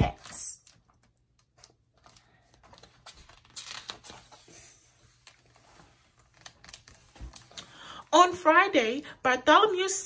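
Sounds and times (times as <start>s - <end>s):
book page turning: 0.2s - 7.7s.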